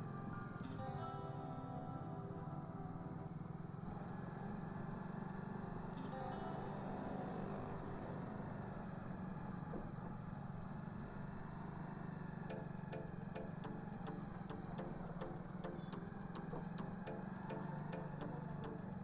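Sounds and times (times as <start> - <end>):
motorcycle engine running: 2.8 - 19.0
turn signal ticking: 12.5 - 19.0.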